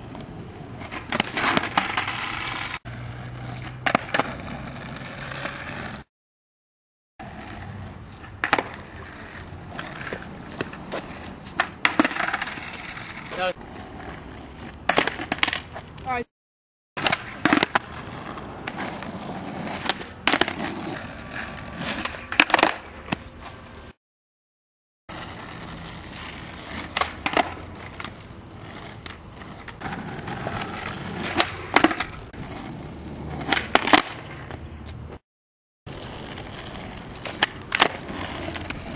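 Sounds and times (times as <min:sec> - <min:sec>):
skateboard wheels rolling on asphalt: 0:00.0 - 0:06.1, 0:07.2 - 0:16.3, 0:17.0 - 0:24.0, 0:25.1 - 0:35.2, 0:35.9 - 0:38.9
skateboard tail popping: 0:00.1 - 0:06.0, 0:07.2 - 0:13.4, 0:14.3 - 0:15.9, 0:17.0 - 0:23.3, 0:26.2 - 0:35.2, 0:35.9 - 0:38.9
skateboard slapping down: 0:03.5 - 0:05.8, 0:08.2 - 0:09.2, 0:11.6 - 0:13.2, 0:14.4 - 0:15.7, 0:17.0 - 0:17.9, 0:18.6 - 0:21.2, 0:21.8 - 0:23.2, 0:26.7 - 0:28.2, 0:29.0 - 0:32.6, 0:33.3 - 0:34.6, 0:36.0 - 0:38.9.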